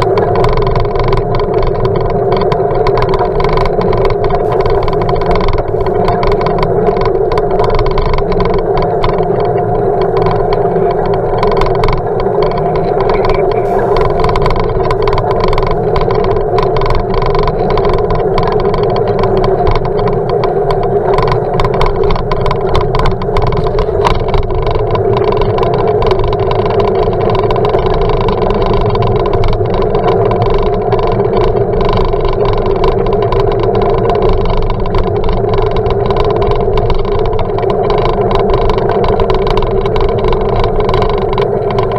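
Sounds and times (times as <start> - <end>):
muffled bicycle ride rumble: 0.0 - 41.9.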